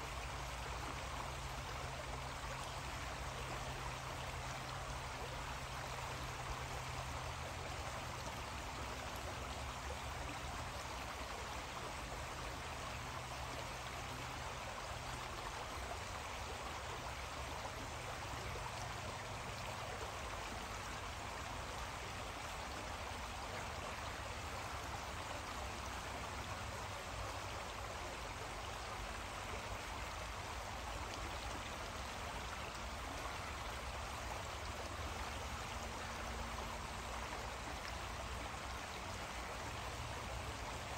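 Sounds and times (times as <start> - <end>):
creek water flowing: 0.0 - 40.9.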